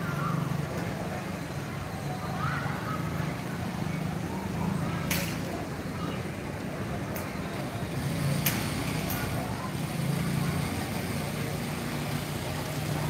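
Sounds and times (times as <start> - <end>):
faint voices: 0.0 - 13.0
low hum of vehicle engines: 0.0 - 13.0.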